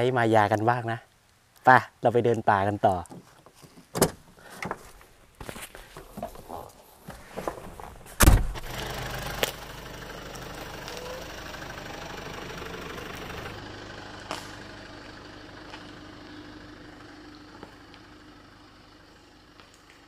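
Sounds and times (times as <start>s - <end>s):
car door slamming: 8.2s - 8.7s
vehicle engine pulling away: 8.5s - 20.0s.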